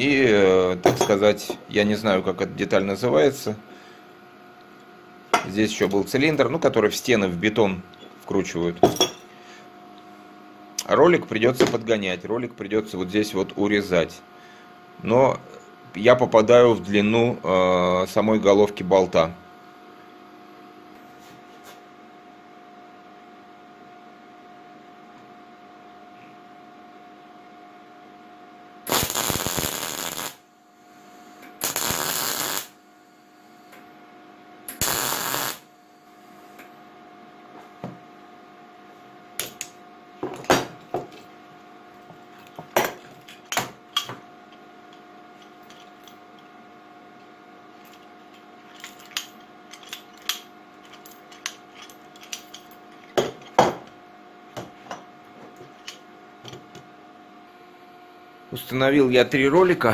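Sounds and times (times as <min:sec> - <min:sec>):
faint steady hum: 0:00.0 - 0:59.9
metal clinks and knocks: 0:00.8 - 0:01.2, 0:08.8 - 0:09.3, 0:48.7 - 0:53.9
welding crackling hiss: 0:28.9 - 0:30.4, 0:31.6 - 0:32.8, 0:34.7 - 0:35.7.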